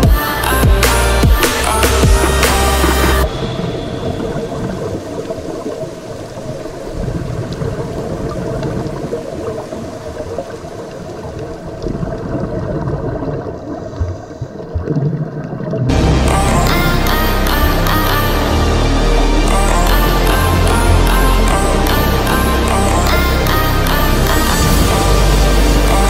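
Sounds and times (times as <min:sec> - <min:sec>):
underwater water noise: 0:00.0 - 0:26.0
bubbling: 0:03.3 - 0:18.2.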